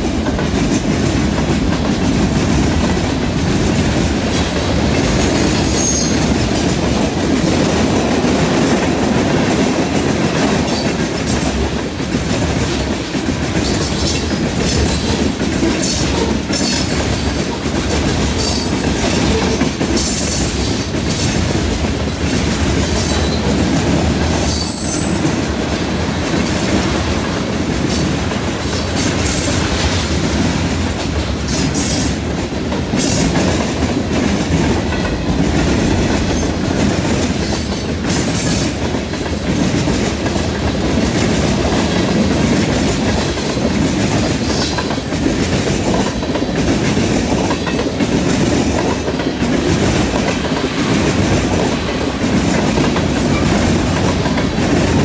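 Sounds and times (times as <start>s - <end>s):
train wheels rumbling on rail: 0.0s - 55.0s
wheels clacking over rail joints: 0.0s - 55.0s
high wheel squeal: 5.6s - 6.2s, 24.5s - 25.2s.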